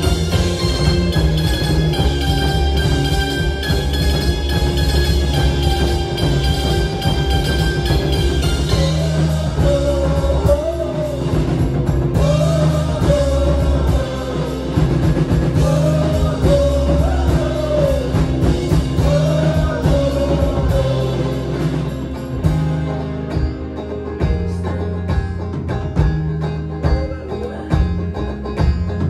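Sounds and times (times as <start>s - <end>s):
country rock band playing: 0.0s - 29.0s
man singing: 8.6s - 22.2s.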